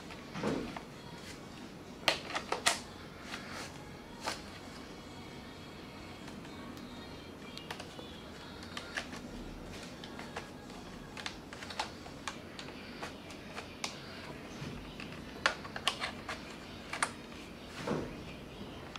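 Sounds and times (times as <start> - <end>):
plastic and metal parts clicking: 15.0 - 17.2.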